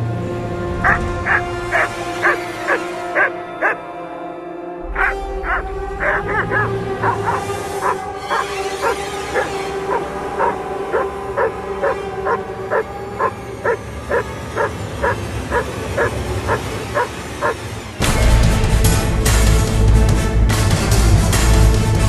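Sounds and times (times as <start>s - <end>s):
dog barking aggressively: 0.8s - 3.8s, 5.0s - 17.6s.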